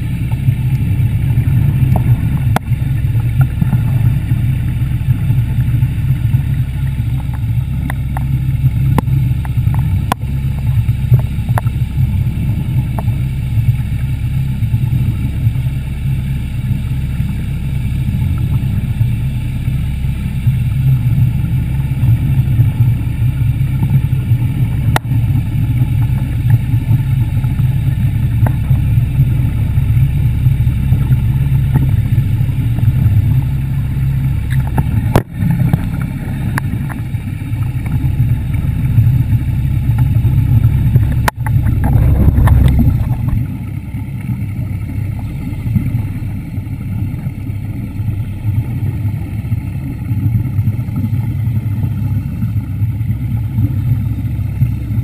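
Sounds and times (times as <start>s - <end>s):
underwater scooter low rumble: 0.0s - 55.0s.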